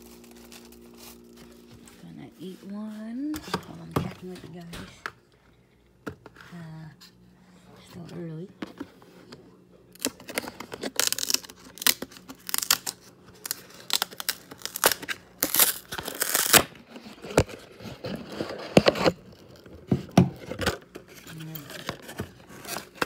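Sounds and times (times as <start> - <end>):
packaging crinkling and tearing: 0.0 - 2.0, 9.9 - 23.0.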